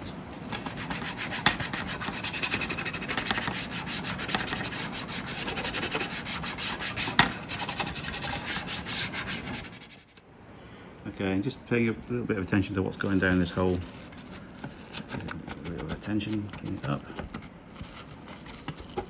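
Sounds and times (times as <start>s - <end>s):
scouring pad scrubbing plastic: 0.0s - 10.2s, 13.0s - 17.0s.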